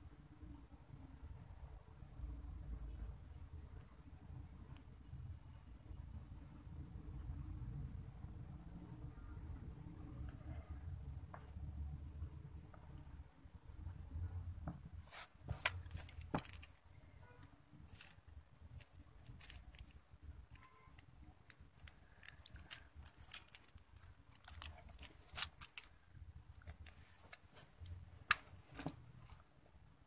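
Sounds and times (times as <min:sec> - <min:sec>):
wire and beads clicking: 0:17.8 - 0:28.0.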